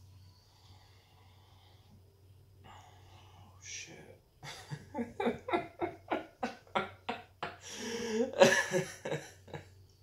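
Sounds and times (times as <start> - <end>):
man laughing: 4.4 - 9.6.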